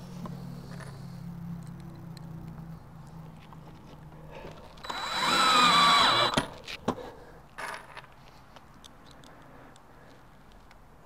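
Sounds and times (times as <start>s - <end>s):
cordless drill driving screw: 4.8s - 6.6s.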